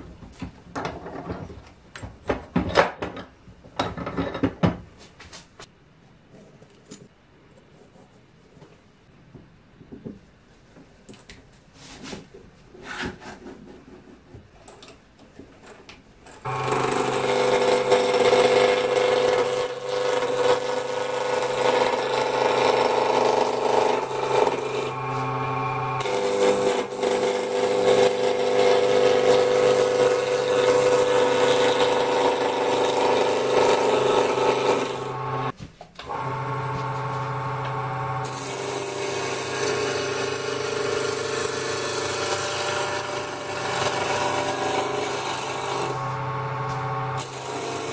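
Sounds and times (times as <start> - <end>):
wood lathe humming: 16.5 - 47.9.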